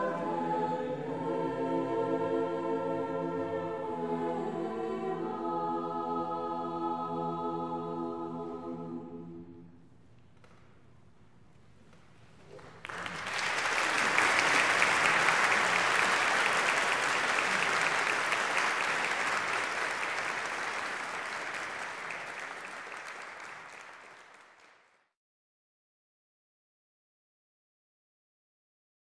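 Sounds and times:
audience applause: 12.3 - 24.9.

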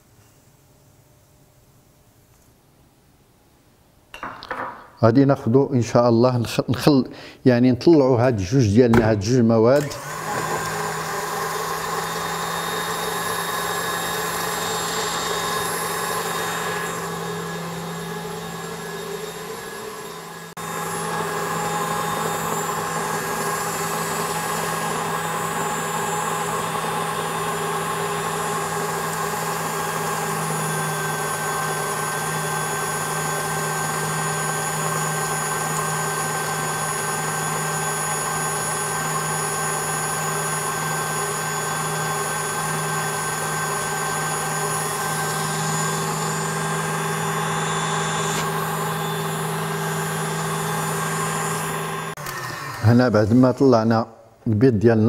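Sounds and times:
stand mixer running: 9.8 - 53.0.

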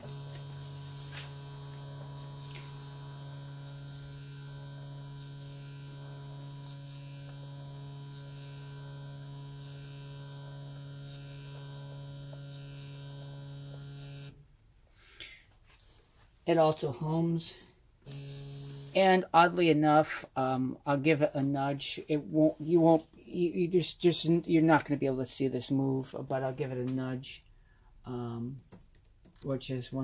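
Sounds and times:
stepper motor humming: 0.0 - 14.4, 18.1 - 19.0.

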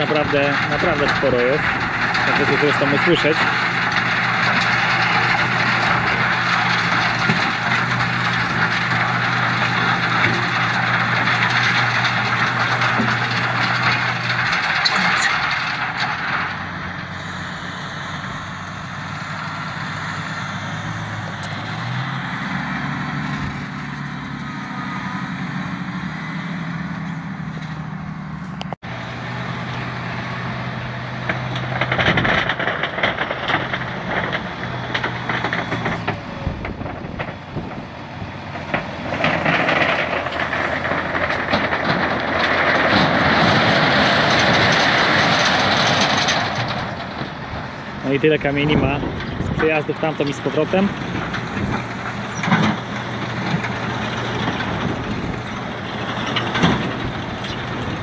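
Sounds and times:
stones clattering in machine: 0.0 - 16.6, 31.3 - 36.2, 38.7 - 47.0
tractor engine running: 0.0 - 58.0.

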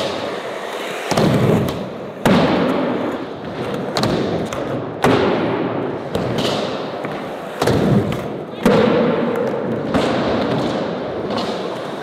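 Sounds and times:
skateboard wheels rolling: 0.0 - 12.0.

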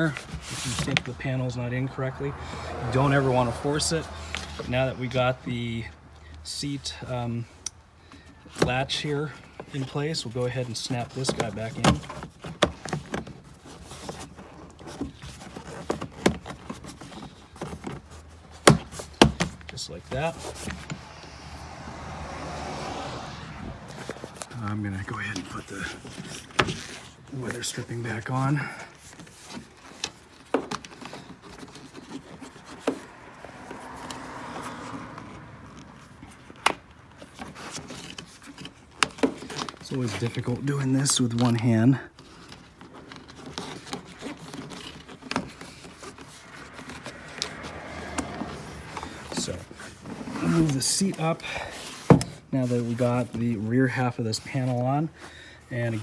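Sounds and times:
plastic clicks and scraping: 11.0 - 21.1, 28.9 - 34.2, 35.2 - 40.5, 42.1 - 51.2.

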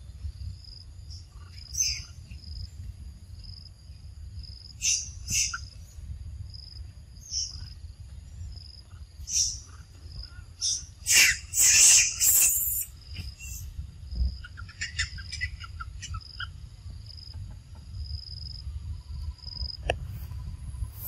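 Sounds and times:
short quick chirping calls: 10.6 - 13.7
high thin insect whine: 10.6 - 13.9.

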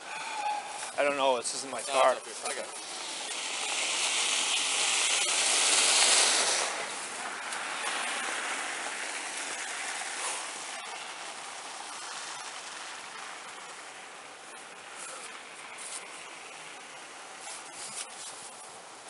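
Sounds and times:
car tyres hissing on wet road: 2.5 - 18.8.

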